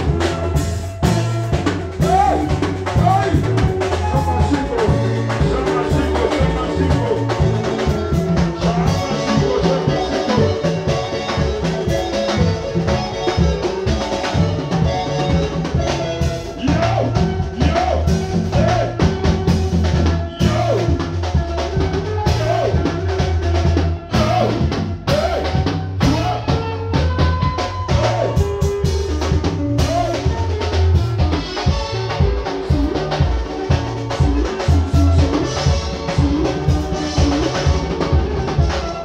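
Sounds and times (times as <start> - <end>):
bass drum and snare hits: 0.0 - 13.1
deep bass notes: 0.0 - 39.0
electric guitars: 0.0 - 39.0.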